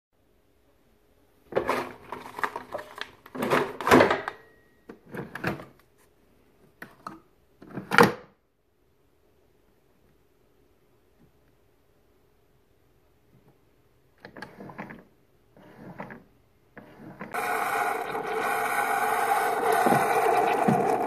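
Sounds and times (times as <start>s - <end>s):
clattering and rustling handling noise: 1.4s - 4.3s.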